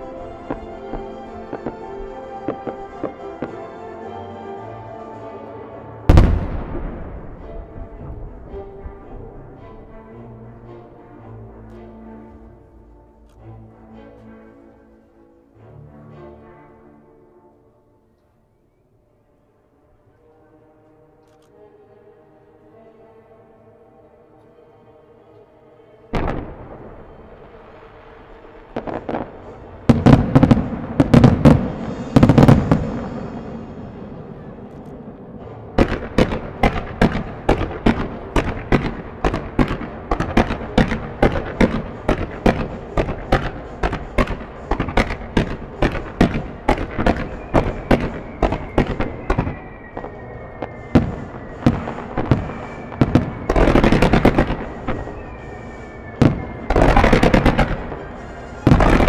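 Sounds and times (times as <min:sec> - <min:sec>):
firework bursts and crackle: 0:00.0 - 0:03.8, 0:26.2 - 0:59.0
fireworks bangs: 0:00.0 - 0:03.8, 0:06.1 - 0:08.3, 0:26.2 - 0:59.0.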